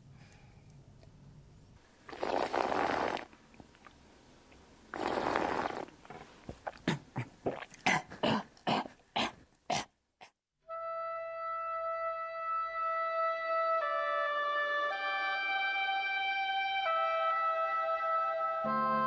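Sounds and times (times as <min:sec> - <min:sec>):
person slurping wine: 0:02.1 - 0:04.0, 0:04.9 - 0:09.9.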